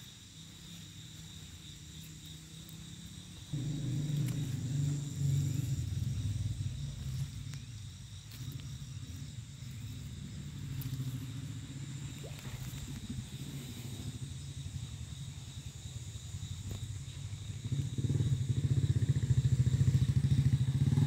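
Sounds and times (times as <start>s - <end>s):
steady low rumble: 3.2s - 19.8s.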